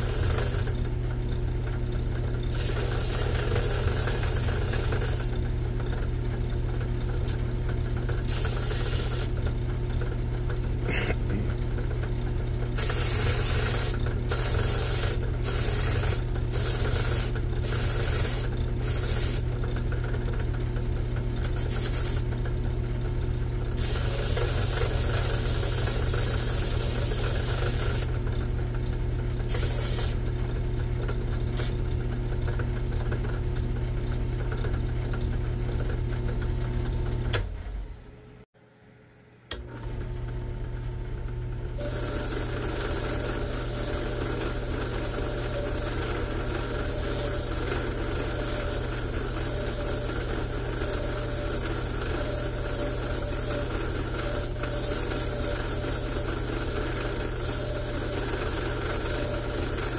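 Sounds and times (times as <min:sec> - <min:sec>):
sanding hiss: 0:08.3 - 0:09.3, 0:12.8 - 0:19.4, 0:21.4 - 0:22.2, 0:23.8 - 0:28.1, 0:29.5 - 0:30.2, 0:41.8 - 0:59.9.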